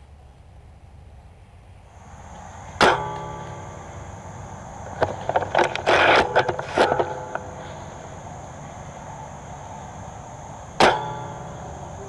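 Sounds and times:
faint outdoor background: 0.0s - 12.0s
rifle clicks and scraping: 4.8s - 7.8s.

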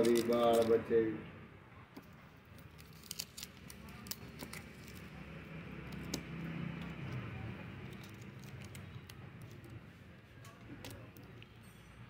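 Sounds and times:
plastic wrap crinkling: 0.0s - 0.8s, 2.4s - 9.9s.

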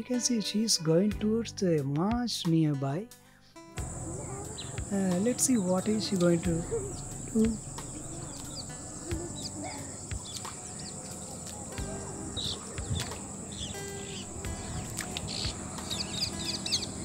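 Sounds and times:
high-pitched insect drone: 3.8s - 17.0s
bird chirps: 4.0s - 17.0s.

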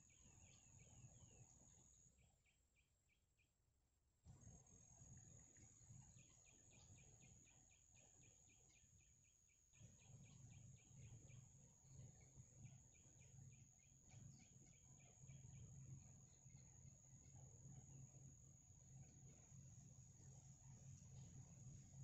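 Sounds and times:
steady high whine: 9.8s - 22.0s.

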